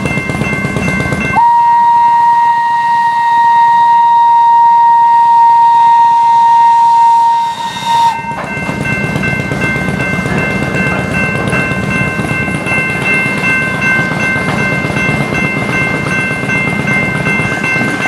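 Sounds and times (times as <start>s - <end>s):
crossing signal bells ringing: 0.0s - 18.0s
train rumbling over crossing: 0.0s - 18.0s
train whistle: 1.4s - 8.5s.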